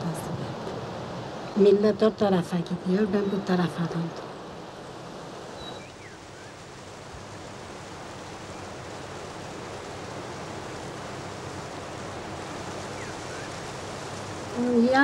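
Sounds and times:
flowing water rushing: 0:00.0 - 0:15.0
faint bird chirp: 0:05.5 - 0:06.6.

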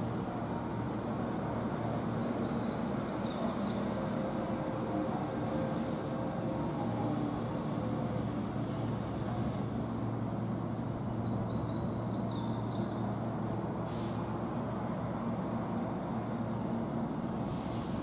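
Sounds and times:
air hiss: 0:13.8 - 0:14.4, 0:17.4 - 0:18.0.

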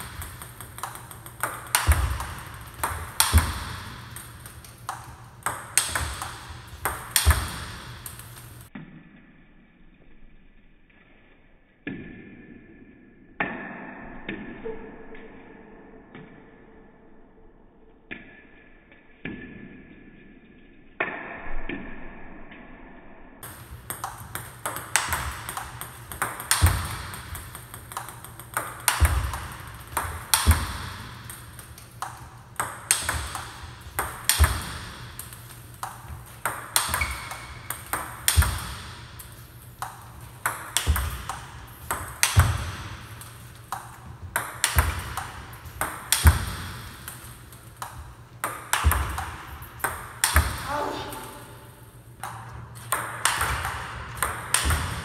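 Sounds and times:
table tennis ball clicks: 0:00.1 - 0:08.7, 0:23.4 - 0:50.6, 0:51.2 - 0:55.0.

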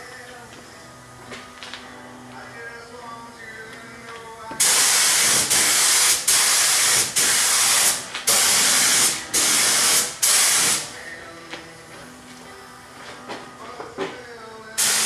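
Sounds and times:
paint spray gun hissing: 0:04.6 - 0:11.0, 0:14.8 - 0:15.0.

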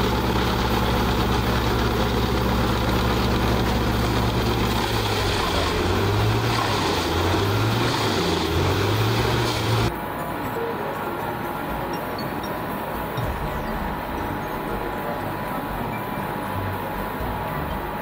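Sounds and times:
wood chipper running: 0:00.0 - 0:09.9.

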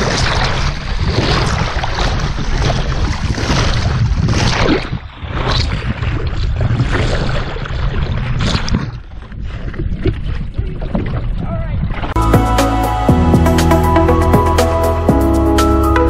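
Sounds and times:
water rushing along a hull: 0:00.0 - 0:16.0.

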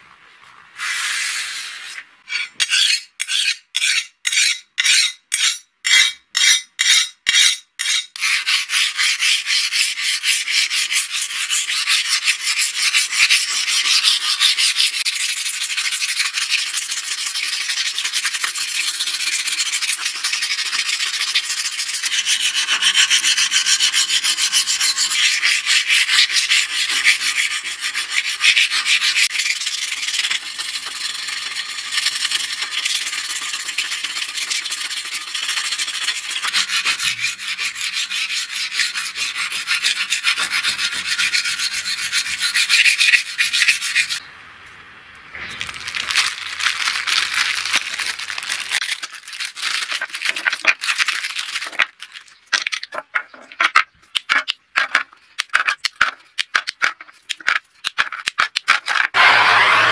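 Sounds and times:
hand file rasping on metal: 0:01.8 - 0:18.3, 0:19.9 - 0:29.3, 0:35.0 - 0:44.2.

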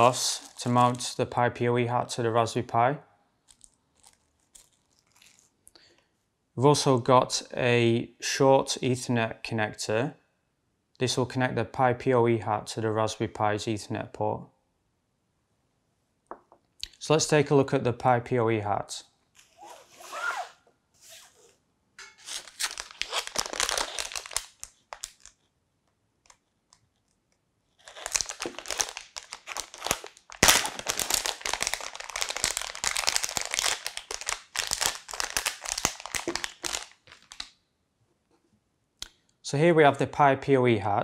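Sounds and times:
plastic bag crinkling: 0:00.0 - 0:01.2, 0:03.4 - 0:05.6, 0:22.1 - 0:25.5, 0:27.8 - 0:37.5.

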